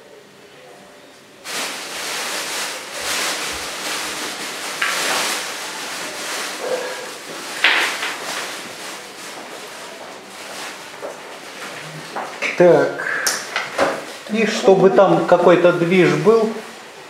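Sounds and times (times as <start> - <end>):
rubbing and scraping: 1.5 - 9.6.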